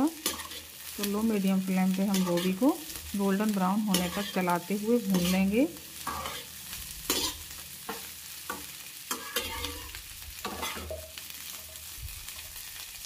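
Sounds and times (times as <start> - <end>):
vegetables sizzling in oil: 0.0 - 13.0
metal spoon scraping pan: 0.2 - 0.9, 2.1 - 2.6, 3.9 - 11.9.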